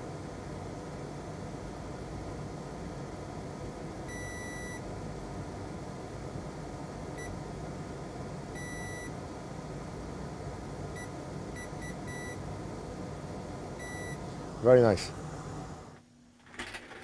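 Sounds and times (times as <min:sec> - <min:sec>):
multimeter beeps: 0:04.1 - 0:04.8, 0:08.6 - 0:09.1, 0:11.0 - 0:12.4, 0:13.8 - 0:14.2.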